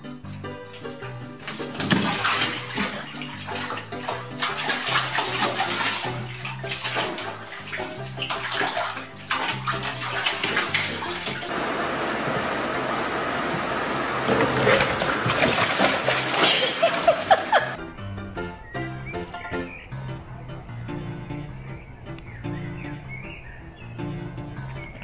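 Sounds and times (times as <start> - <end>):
background music: 0.0 - 11.5, 15.5 - 25.0
cat splashing in water: 1.4 - 11.6, 12.2 - 17.8, 24.2 - 25.0.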